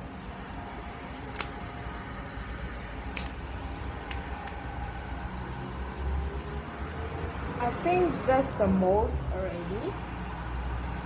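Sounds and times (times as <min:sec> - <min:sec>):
monopod sections clicking: 0:03.0 - 0:03.4.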